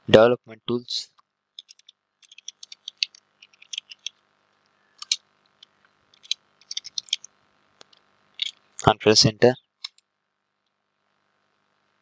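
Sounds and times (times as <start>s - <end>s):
keyboard key clicks: 6.2s - 7.2s.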